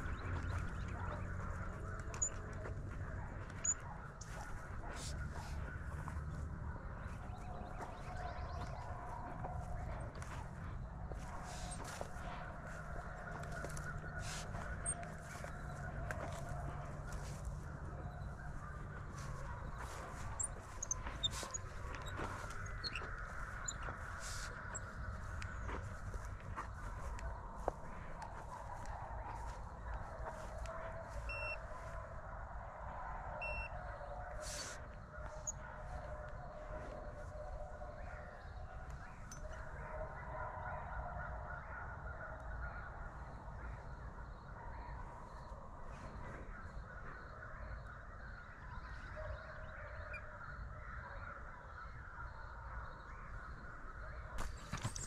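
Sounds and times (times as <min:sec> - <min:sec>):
distant animal calls: 0:00.0 - 0:55.0
footsteps in dry stubble: 0:00.0 - 0:55.0
hounds baying: 0:00.0 - 0:55.0
short electronic beeps: 0:03.6 - 0:03.8, 0:31.3 - 0:31.6, 0:33.4 - 0:33.7.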